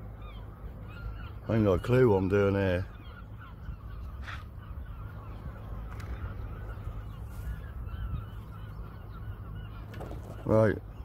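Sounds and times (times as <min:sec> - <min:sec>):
distant birds calling: 0:00.0 - 0:11.0
low steady rumble: 0:02.8 - 0:11.0.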